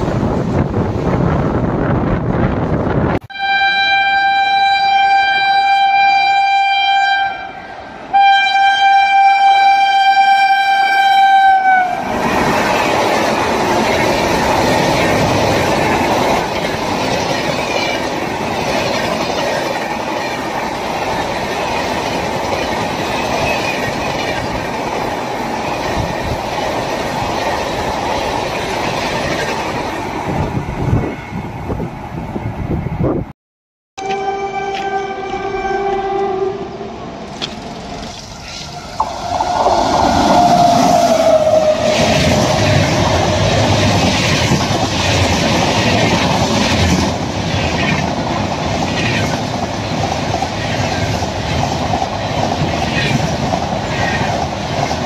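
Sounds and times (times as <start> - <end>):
train rolling past: 0.0 - 33.3, 34.0 - 55.0
train horn blasts: 3.3 - 12.1, 34.0 - 37.0.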